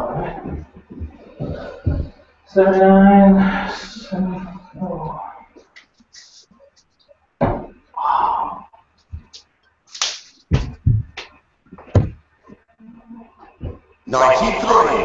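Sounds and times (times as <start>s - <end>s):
sharp knocks and thuds: 7.4s - 7.8s, 10.5s - 12.6s.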